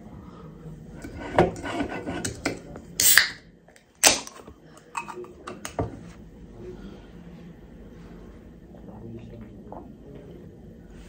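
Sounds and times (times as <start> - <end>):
can pull tab cracking open: 3.0 - 3.4, 4.0 - 4.4.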